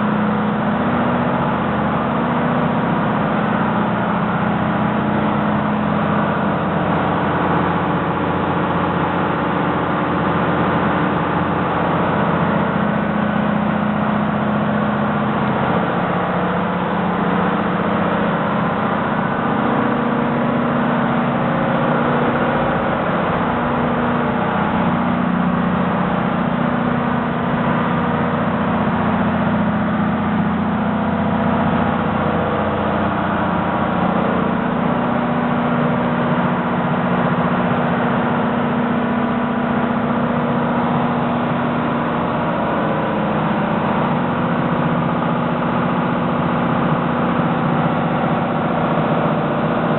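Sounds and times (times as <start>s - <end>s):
diesel machinery drone: 0.0s - 49.9s.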